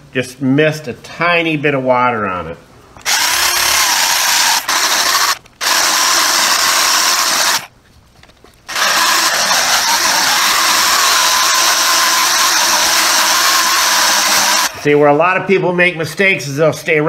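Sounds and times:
rotary polisher running: 8.7s - 14.7s.

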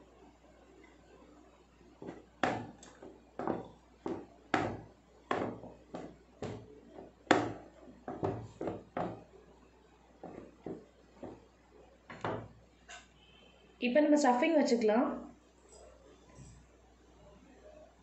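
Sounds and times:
rolling pin knocking on board: 2.0s - 9.3s, 10.2s - 11.5s, 12.1s - 12.6s.

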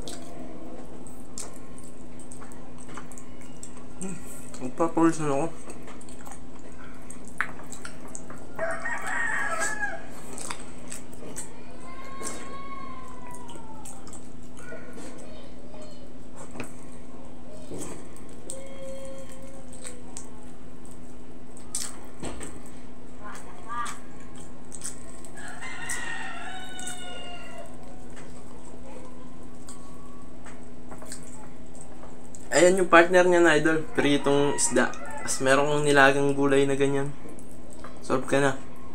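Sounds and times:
rooster crowing: 8.6s - 10.2s, 25.4s - 27.9s, 33.5s - 35.8s.

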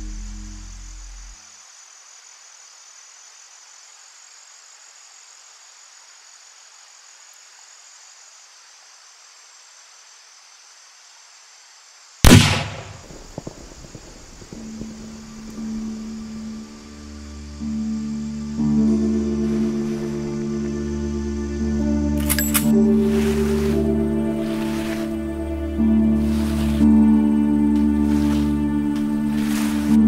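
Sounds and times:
faint air hiss: 0.0s - 18.5s
loud gunshot: 12.2s - 15.2s.

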